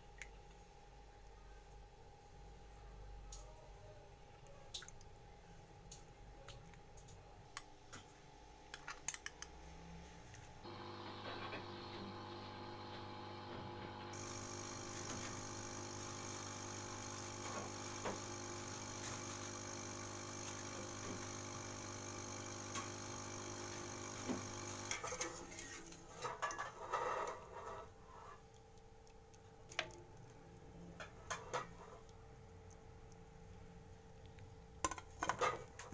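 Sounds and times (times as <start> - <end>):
steady hum: 9.8 - 25.8
boiling water hiss: 14.1 - 26.2.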